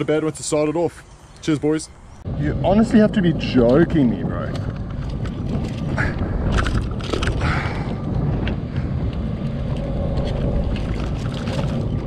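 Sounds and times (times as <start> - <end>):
water washing against hull: 10.1 - 12.0.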